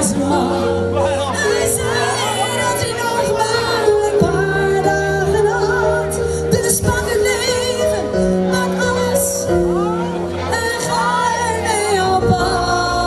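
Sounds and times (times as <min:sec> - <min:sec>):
pop backing music over loudspeakers: 0:00.0 - 0:13.0
woman singing into a microphone: 0:00.0 - 0:13.0.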